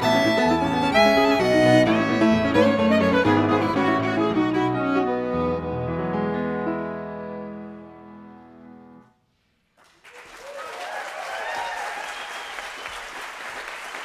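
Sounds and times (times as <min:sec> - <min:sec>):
violin clarinet and piano chord: 0:00.0 - 0:08.2
audience applause: 0:09.8 - 0:14.0.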